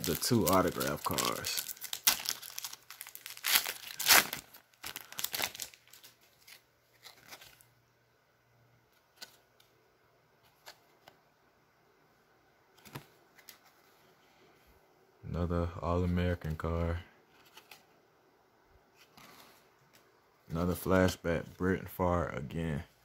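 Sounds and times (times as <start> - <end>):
cards clicking and rustling: 0.0 - 7.6, 12.8 - 13.8
foil wrapper tearing and crinkling: 0.0 - 7.6.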